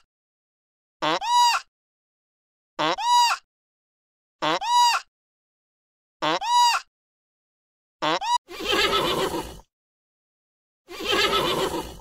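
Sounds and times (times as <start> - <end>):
pony whinnying: 8.2 - 9.7, 10.9 - 12.0.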